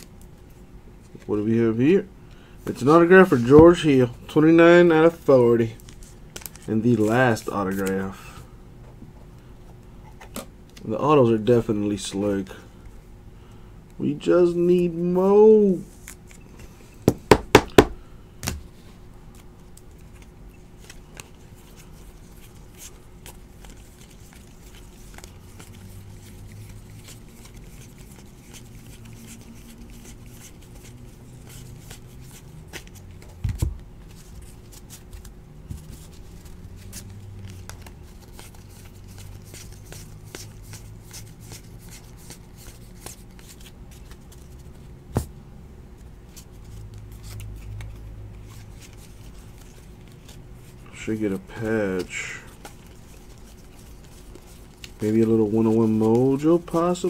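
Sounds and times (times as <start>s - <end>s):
trading cards rustling: 2.7s - 8.2s, 19.4s - 45.3s, 46.0s - 57.0s
cards knocking on table: 17.1s - 18.6s.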